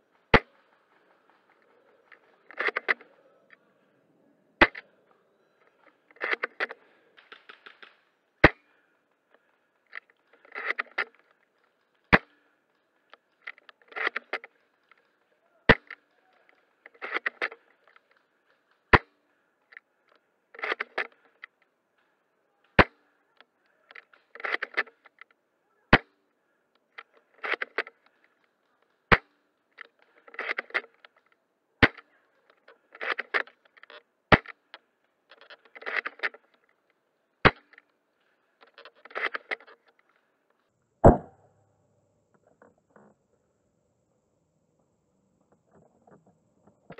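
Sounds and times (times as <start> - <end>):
rifle bolt rattling: 6.1 - 8.0, 29.8 - 31.2, 35.3 - 36.6
airsoft rifle shots: 41.0 - 41.4.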